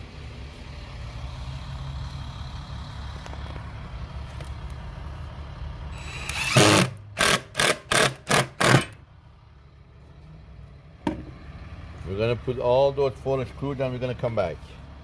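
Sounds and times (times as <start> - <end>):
power driver driving screw: 6.0 - 9.0.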